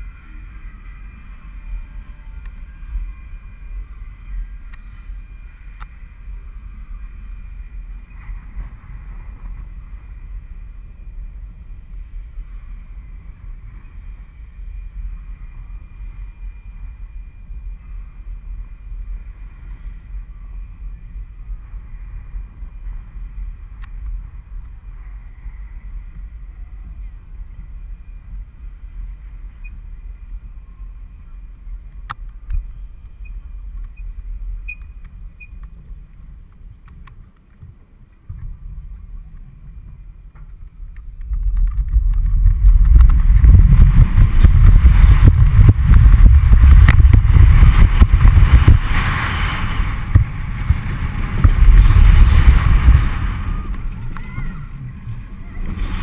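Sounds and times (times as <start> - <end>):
roller coaster wheels roaring on track: 0.0 - 56.0
wind on microphone: 5.7 - 56.0.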